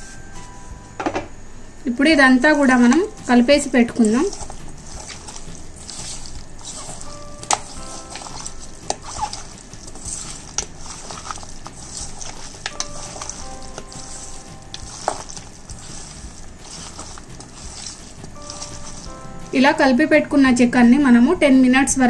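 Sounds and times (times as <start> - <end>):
hands kneading raw chicken: 3.0 - 19.6.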